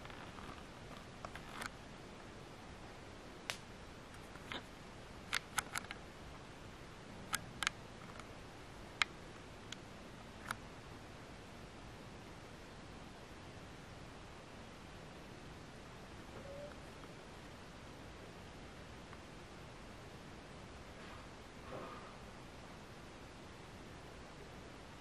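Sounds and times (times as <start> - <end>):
sharp clicks and crackles: 0.0 - 1.8, 5.3 - 6.0, 7.3 - 8.3
faint steady hiss: 0.0 - 25.0.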